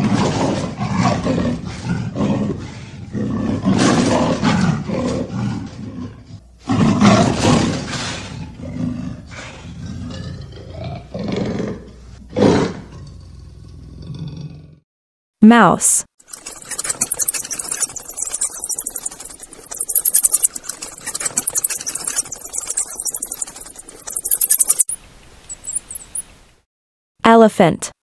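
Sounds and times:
leopard roaring and growling: 0.0 - 14.8.

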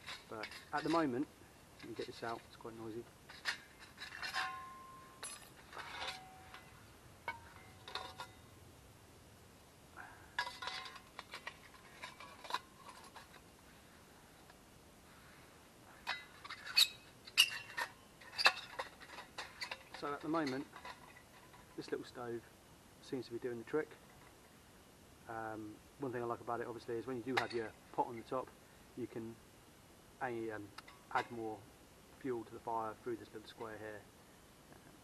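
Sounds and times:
metal stove clinking and rattling: 3.3 - 6.7, 7.3 - 8.4, 10.4 - 13.4, 16.0 - 21.9.

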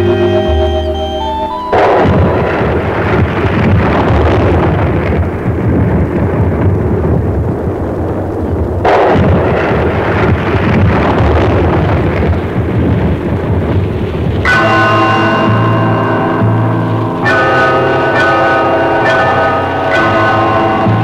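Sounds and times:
loud blast: 0.0 - 21.0
loud rumble of explosions: 0.0 - 21.0.

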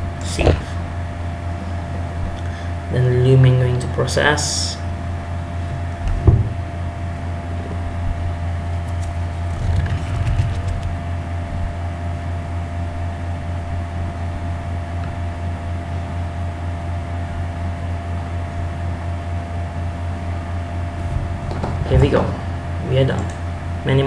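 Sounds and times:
computer machine hum: 0.0 - 24.0.

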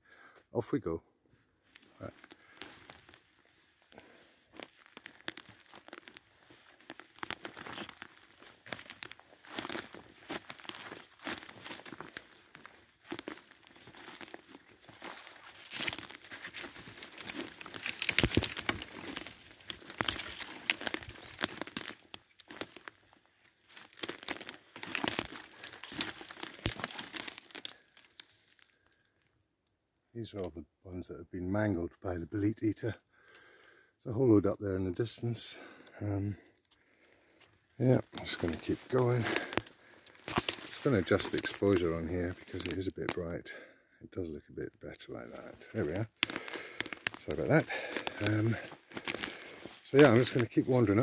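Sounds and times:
footsteps crunching through dry leaves: 1.6 - 29.0, 37.3 - 43.3, 45.1 - 51.0
twigs snapping: 1.8 - 29.3, 35.6 - 43.4, 45.1 - 51.0.

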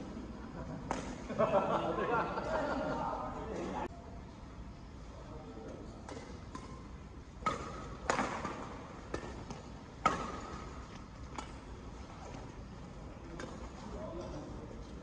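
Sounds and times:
racket smacking shuttlecock: 6.0 - 11.9.

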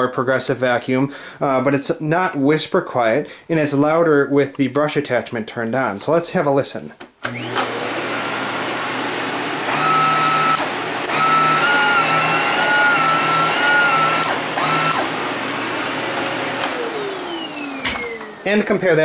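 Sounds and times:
vacuum cleaner motor whirring: 7.2 - 19.0.

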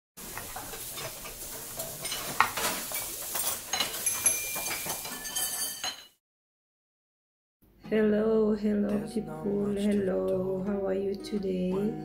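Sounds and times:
dishes and cutlery clinking: 0.2 - 6.2.

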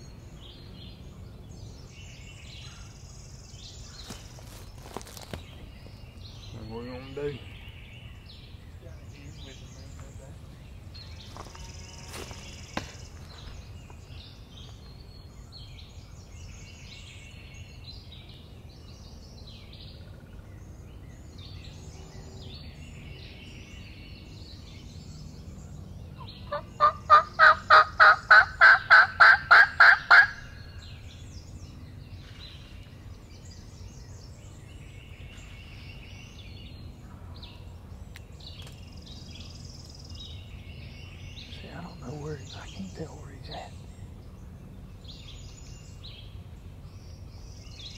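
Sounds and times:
faint songbird chatter: 0.0 - 47.9
loud bird call: 26.2 - 31.0.

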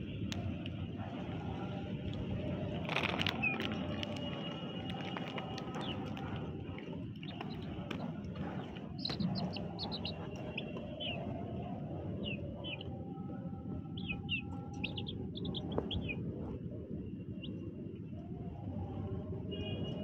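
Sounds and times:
chicks peeping: 4.9 - 6.2, 7.2 - 11.2, 14.0 - 16.2.

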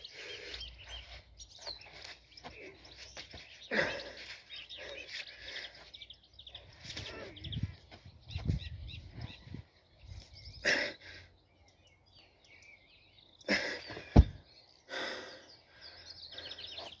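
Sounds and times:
small birds chirping: 0.0 - 17.0
deep thud of stone: 13.9 - 14.4.

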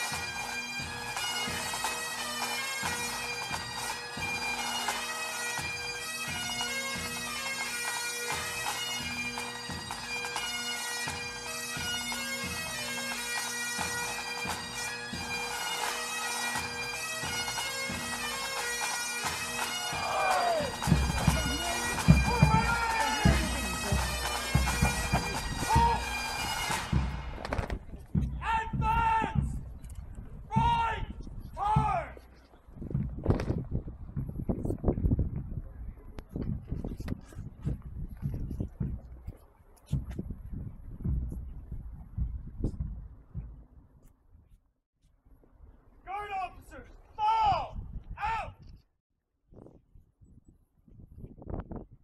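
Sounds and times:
bagpipes playing over drone: 0.0 - 27.3
nearby voices: 20.0 - 24.2
low rumbling knocks: 40.0 - 43.8.

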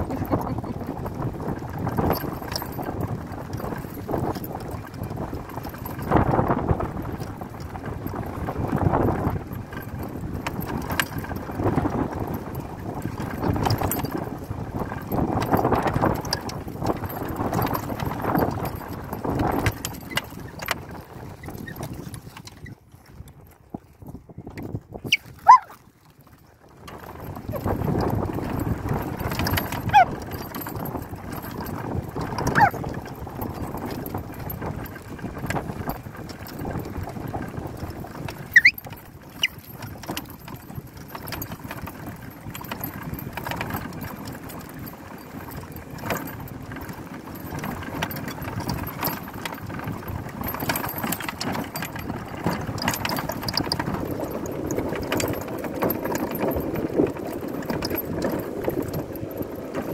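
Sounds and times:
engine running: 0.0 - 2.8
short high squeaks: 25.0 - 25.8, 32.5 - 32.8, 38.5 - 38.8.

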